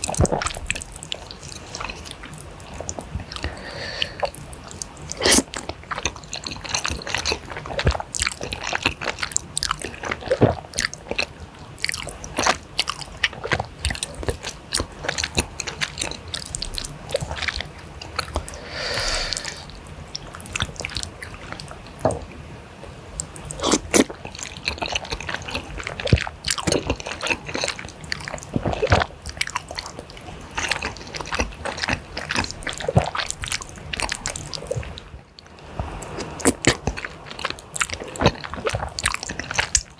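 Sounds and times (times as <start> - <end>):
wet chewing and lip smacking: 0.0 - 22.2, 23.1 - 39.9
slurping noodles: 5.1 - 8.0, 16.1 - 19.7.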